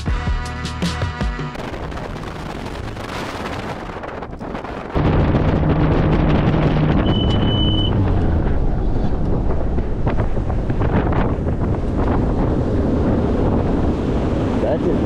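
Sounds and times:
boat hull and water noise: 1.5s - 15.0s
outboard motor drone: 1.5s - 15.0s
wind rush on microphone: 1.5s - 15.0s
short high beep: 7.0s - 8.0s.

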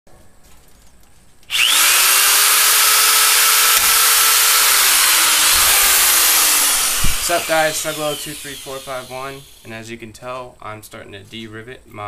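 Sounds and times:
electric drill drilling metal: 1.5s - 9.7s.

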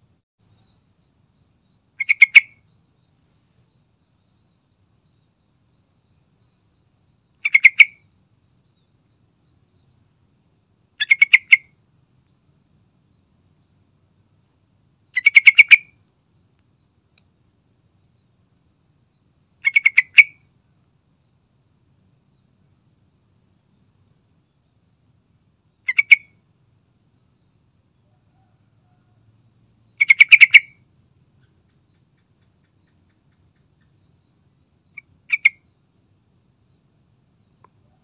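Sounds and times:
bird calling: 1.8s - 2.8s, 6.3s - 8.1s, 11.0s - 11.8s, 15.1s - 16.0s, 19.6s - 20.5s, 25.8s - 26.4s, 30.0s - 30.8s, 31.4s - 35.7s.

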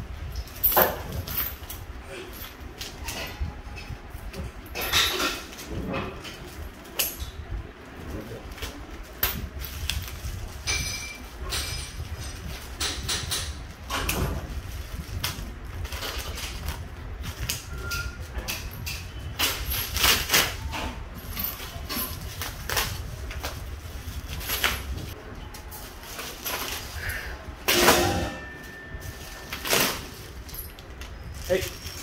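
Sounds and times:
steady low hum: 0.0s - 32.0s
plastic sheeting crinkling: 28.7s - 32.0s.

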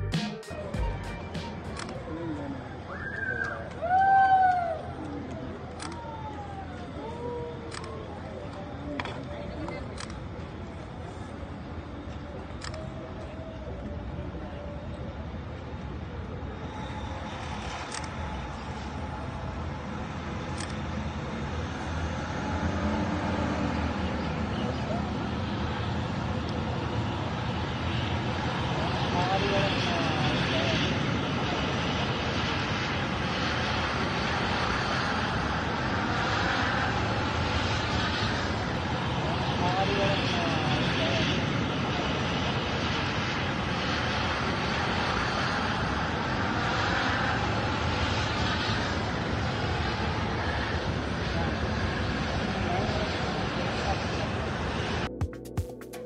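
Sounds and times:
jet engine noise: 0.0s - 55.9s.

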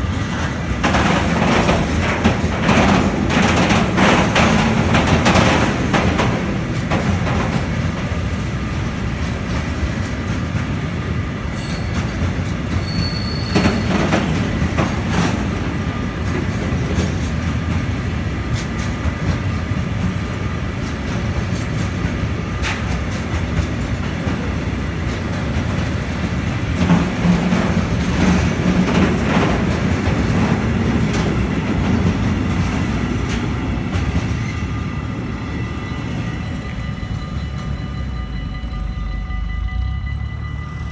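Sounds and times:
sharp train clacks: 0.0s - 40.9s
steel wheels rumbling on rails: 0.0s - 40.9s
high wheel squeal: 11.5s - 14.6s.

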